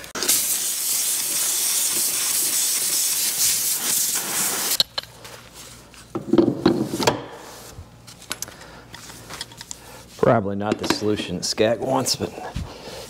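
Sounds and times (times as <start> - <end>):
compressed air hissing from hose: 0.1 - 4.8.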